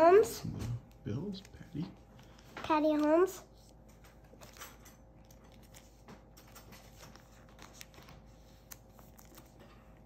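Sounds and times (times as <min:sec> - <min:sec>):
foil pack crinkling: 0:03.7 - 0:10.0.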